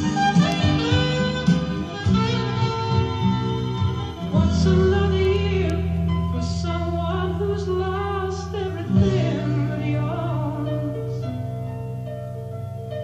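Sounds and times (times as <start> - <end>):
long held bass notes: 0.0 - 13.0
person singing: 4.1 - 11.8.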